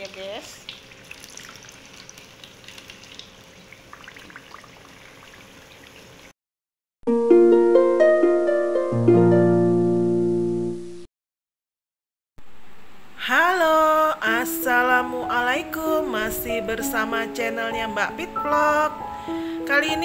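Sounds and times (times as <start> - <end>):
hot oil sizzling: 0.0 - 6.3.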